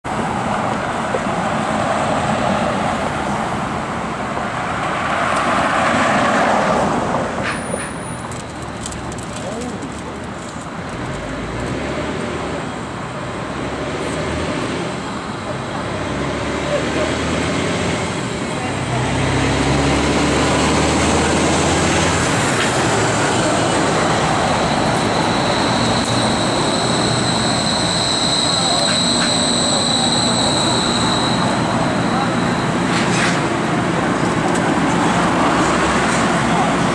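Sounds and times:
road traffic passing: 0.0s - 36.9s
streetcar rolling: 0.0s - 36.9s
high steady whine: 22.2s - 34.6s.

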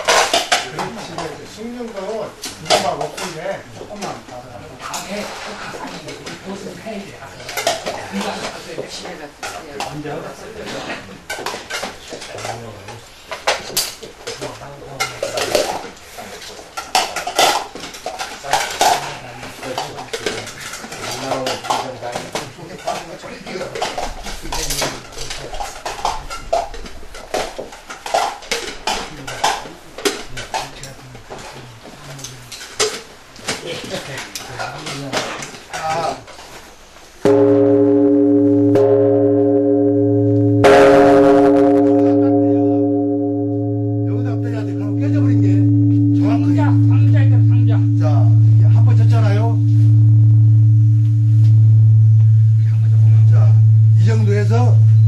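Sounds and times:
large bronze bell ringing: 37.3s - 55.0s.

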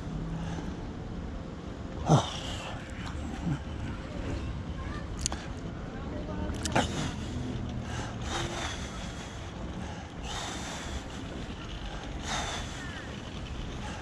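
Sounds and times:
electric wheelchair rolling: 6.6s - 14.0s.

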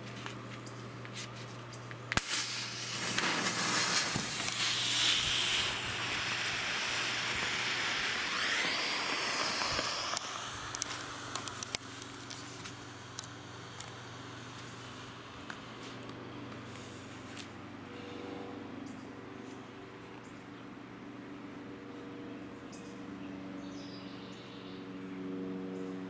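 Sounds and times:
smoke grenade hissing: 2.2s - 15.3s
sharp clicks: 3.0s - 14.0s.

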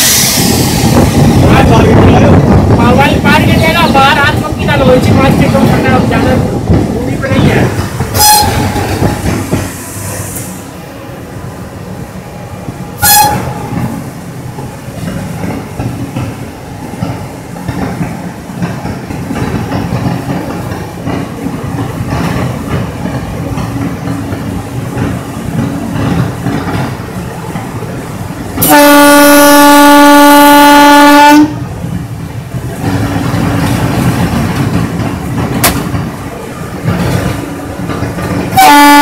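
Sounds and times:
locomotive cab rumble and rattle: 13.0s - 39.0s
high-pitched horn toots: 38.6s - 39.0s.

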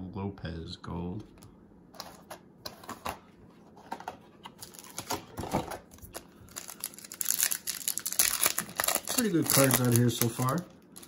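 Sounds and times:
foil wrapper crinkling: 3.9s - 11.0s.

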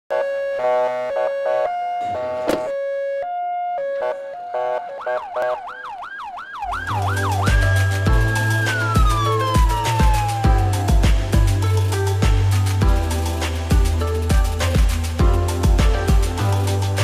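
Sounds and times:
ambulance siren: 0.1s - 11.5s
music with heavy bass beat: 6.9s - 17.0s.

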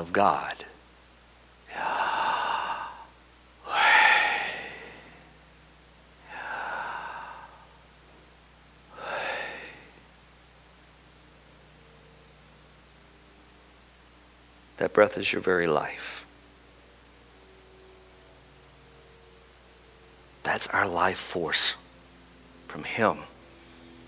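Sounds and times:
man breathing into a microphone: 1.7s - 3.1s, 3.7s - 5.2s, 6.3s - 7.8s, 8.9s - 10.0s.

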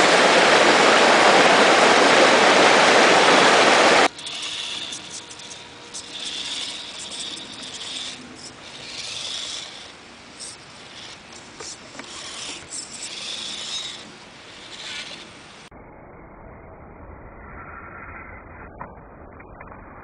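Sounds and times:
small electric motor whining: 3.6s - 15.7s
tyres scraping through grass: 4.0s - 15.6s.

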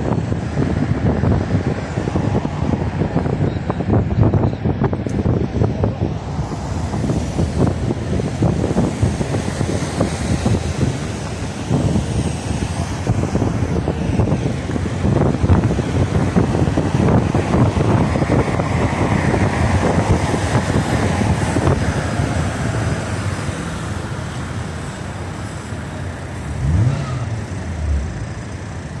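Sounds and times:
wind buffeting microphone: 0.0s - 25.4s
cars passing: 0.0s - 29.0s.

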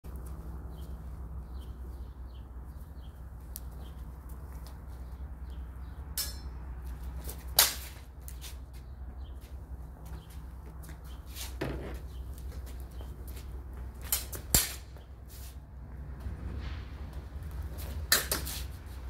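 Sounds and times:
birds chirping: 0.1s - 7.5s, 8.2s - 13.9s
swords clashing: 6.2s - 6.5s, 7.6s - 8.0s, 14.1s - 14.9s.

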